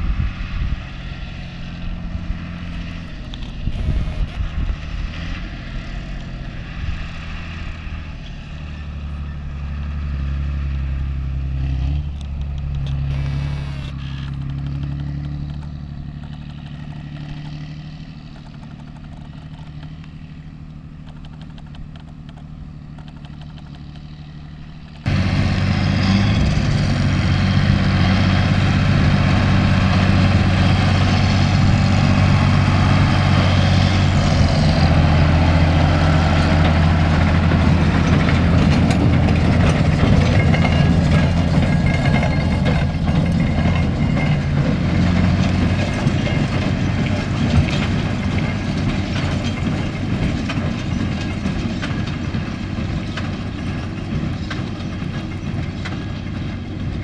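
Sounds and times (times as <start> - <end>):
tractor diesel engine running: 0.0 - 57.0
baler rattling and clattering: 33.8 - 57.0.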